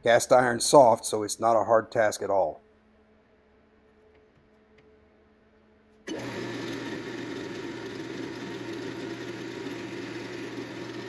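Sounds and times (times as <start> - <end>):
drill press drilling cast iron: 6.1 - 11.0.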